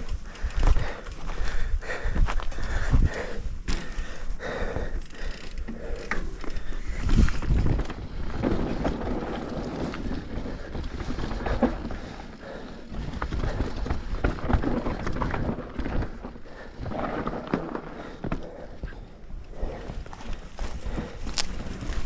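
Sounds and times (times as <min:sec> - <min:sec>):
bike rattling and knocking: 0:00.0 - 0:22.0
bike tyres rumbling over dirt: 0:00.0 - 0:22.0
wind rushing over microphone: 0:06.8 - 0:10.7.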